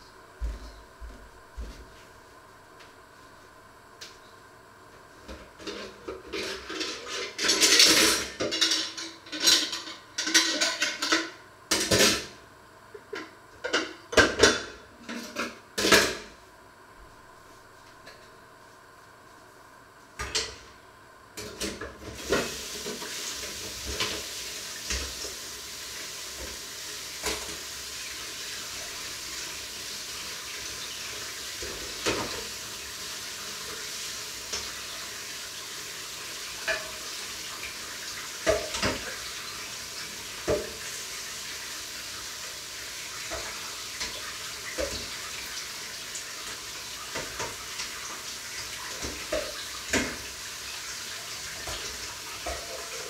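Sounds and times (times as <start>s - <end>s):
water running from tap: 21.9s - 53.0s.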